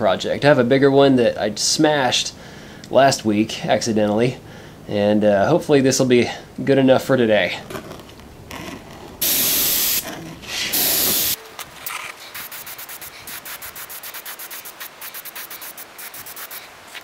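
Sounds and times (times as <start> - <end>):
airbrush hissing air bursts: 9.2 - 11.4, 12.4 - 16.7.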